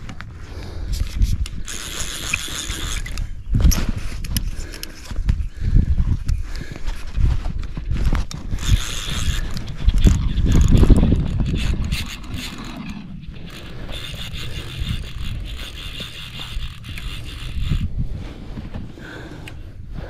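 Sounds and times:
wind rumbling on microphone: 0:00.0 - 0:20.0
fly reel ratcheting: 0:00.6 - 0:05.1, 0:08.2 - 0:18.0.

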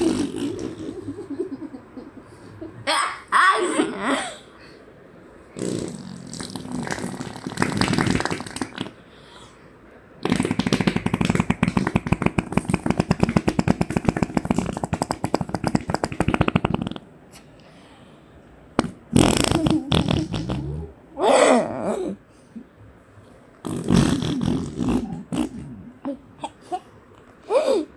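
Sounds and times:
child blowing raspberries on skin: 0:10.2 - 0:17.0.

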